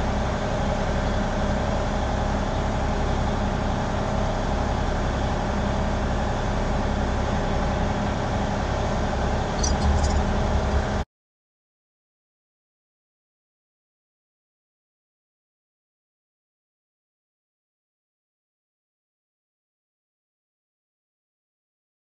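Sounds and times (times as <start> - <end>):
mechanical drone with low hum: 0.0 - 11.0.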